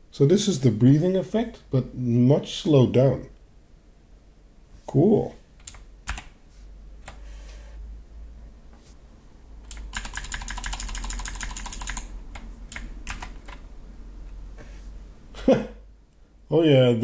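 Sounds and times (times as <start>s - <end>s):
mechanical keyboard clicks: 9.7s - 13.6s.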